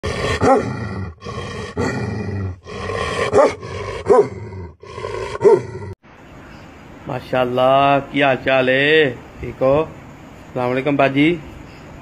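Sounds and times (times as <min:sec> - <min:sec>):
dog growling: 0:00.0 - 0:06.0
dog barking: 0:03.3 - 0:04.4.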